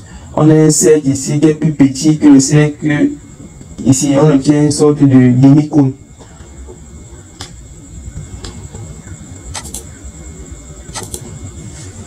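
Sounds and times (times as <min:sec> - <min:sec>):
faint high whine: 0:00.0 - 0:12.0
low background hum: 0:00.0 - 0:12.0
computer mouse clicking: 0:09.5 - 0:09.9, 0:10.9 - 0:11.2.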